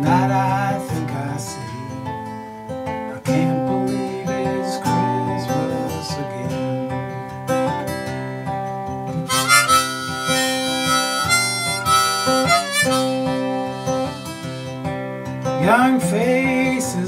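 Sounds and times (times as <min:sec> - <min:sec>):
acoustic guitar strumming: 0:00.0 - 0:17.0
harmonica playing long notes: 0:09.2 - 0:15.1.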